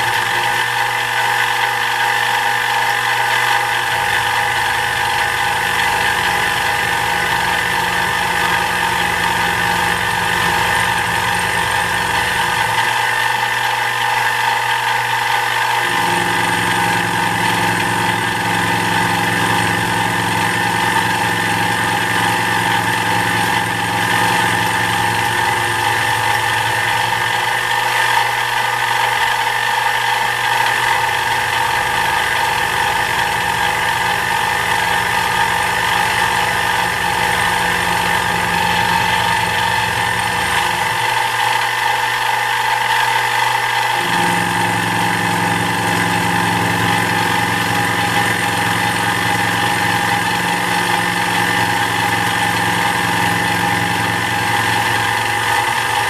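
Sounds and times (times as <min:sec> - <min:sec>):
milling machine motor whine: 0:00.0 - 0:56.0.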